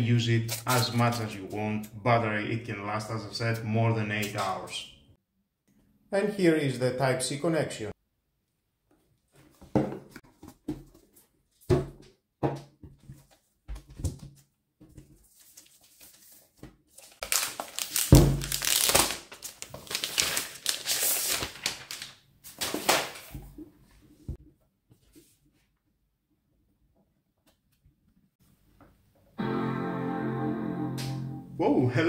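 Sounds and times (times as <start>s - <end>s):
plastic film crinkling: 15.3s - 23.2s.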